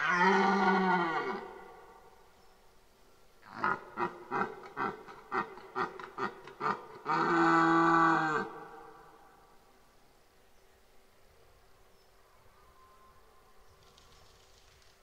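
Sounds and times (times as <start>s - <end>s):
deer stag roaring: 0.0s - 1.9s, 3.4s - 9.2s.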